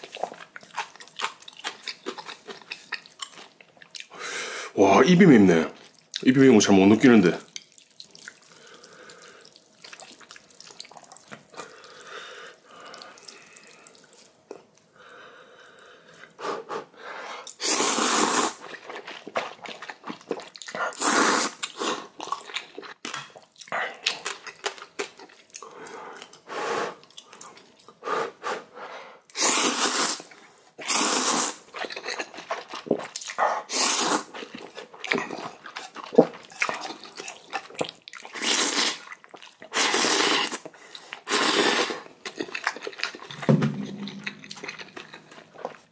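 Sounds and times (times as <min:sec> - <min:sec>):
quiet chewing: 0:00.0 - 0:04.1, 0:07.4 - 0:16.4, 0:31.7 - 0:33.4, 0:34.3 - 0:45.9
loud wet slurps of noodles: 0:17.5 - 0:18.6, 0:20.9 - 0:22.0, 0:29.4 - 0:31.6, 0:39.8 - 0:40.6, 0:41.2 - 0:42.1.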